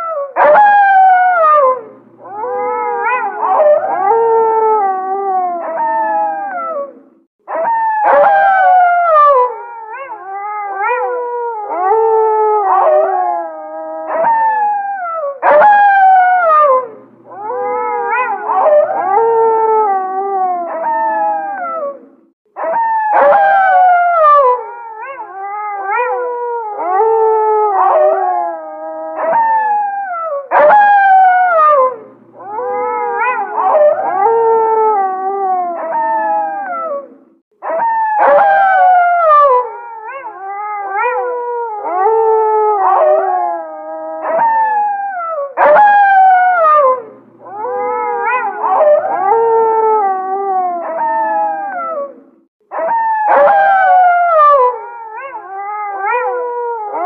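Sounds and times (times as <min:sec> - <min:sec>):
wolves howling in chorus: 0:00.0 - 0:57.0.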